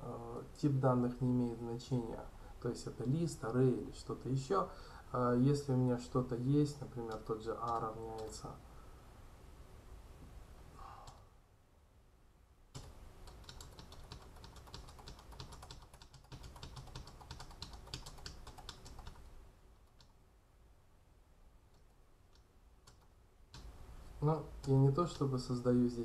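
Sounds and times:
typing on a keyboard: 7.1 - 8.4, 12.8 - 19.3.

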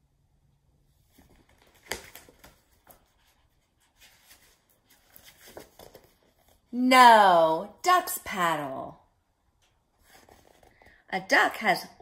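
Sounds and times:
paper page rustling: 1.0 - 6.7, 10.0 - 11.0.

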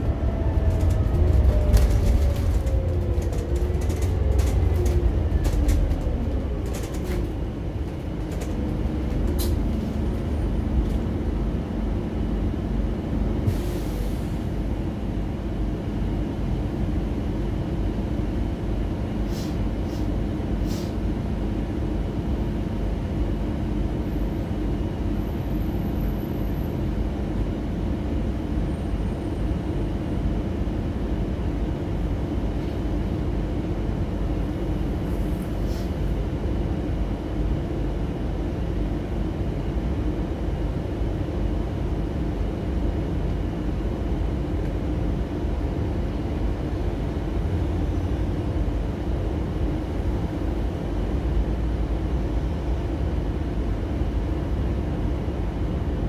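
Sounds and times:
bus engine rumble: 0.0 - 56.0
light rattles and clicks: 0.7 - 10.0.

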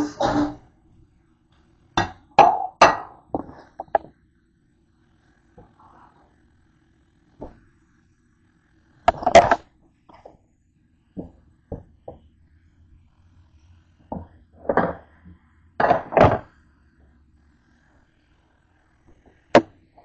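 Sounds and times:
objects knocking on counter: 14.1 - 15.0, 15.8 - 16.5.

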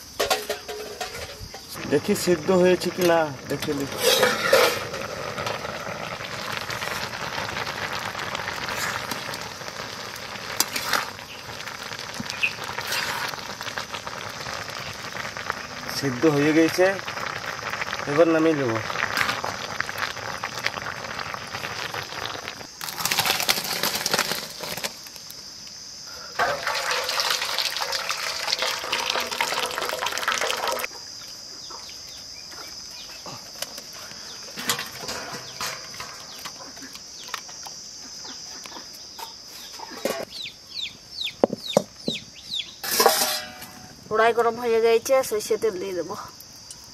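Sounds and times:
water pouring and splashing: 0.3 - 25.1, 26.4 - 30.9.

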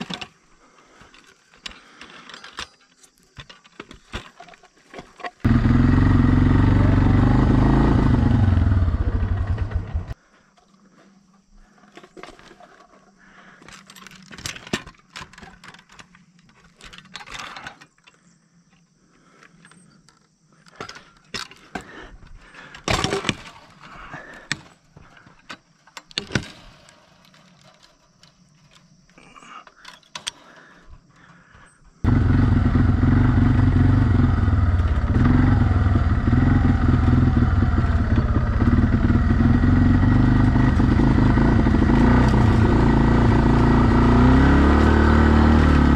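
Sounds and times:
atv engine running: 5.4 - 10.2, 32.0 - 45.9
gear knocking and rattling: 32.1 - 45.9.

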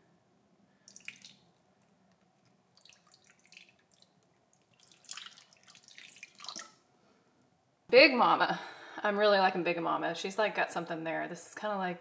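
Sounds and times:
water splashing into bowl: 0.9 - 6.8.

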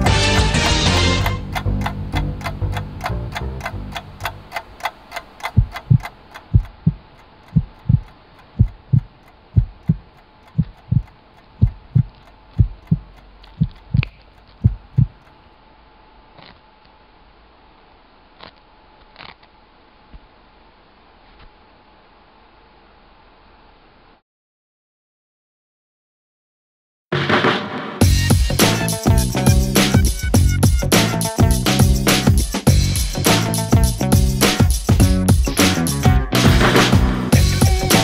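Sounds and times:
faint steady hum: 0.0 - 24.2
faint clicks: 1.5 - 15.5
heartbeat thumps: 5.4 - 15.2, 28.0 - 38.0.

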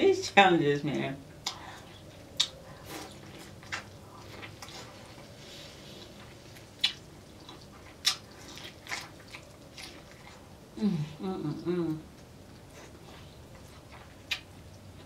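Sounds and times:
wet mouth smacks: 2.4 - 2.6, 6.8 - 7.0
biting and chewing corn: 6.0 - 10.5.

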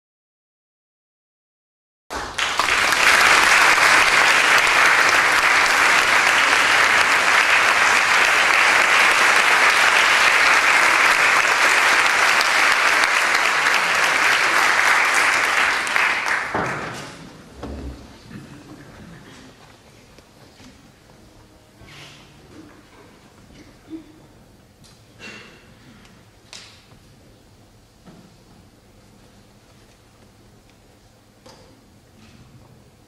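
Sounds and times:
audience applauding: 2.1 - 17.2.

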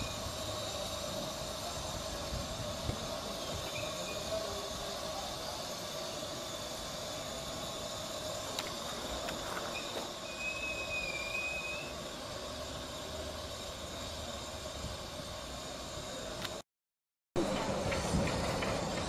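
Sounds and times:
steam locomotive hissing: 0.0 - 16.6, 17.4 - 19.0
thin squeal: 9.6 - 12.0.

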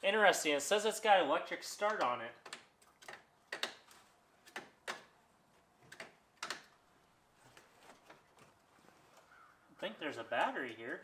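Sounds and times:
light clicks and knocks of parts: 1.8 - 11.0.

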